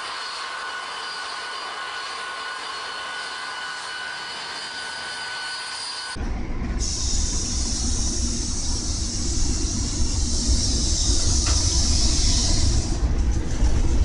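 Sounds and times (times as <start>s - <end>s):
rotary snow blower whining: 0.0s - 6.2s
snow plow train rumbling past: 6.2s - 14.0s.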